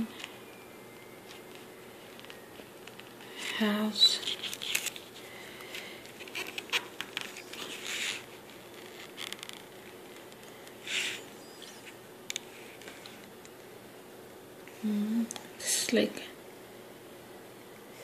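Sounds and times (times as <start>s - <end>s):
fingers rustling paper pages: 1.2s - 13.4s.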